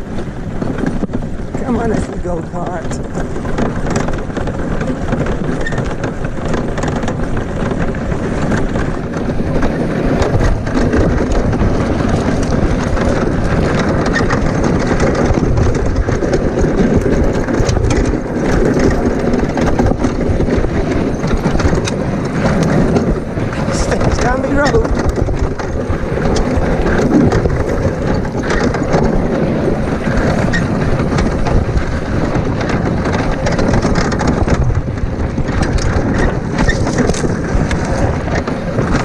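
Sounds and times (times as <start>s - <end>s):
kart frame rattling: 0.0s - 39.0s
wheels rumbling on gravel: 0.0s - 39.0s.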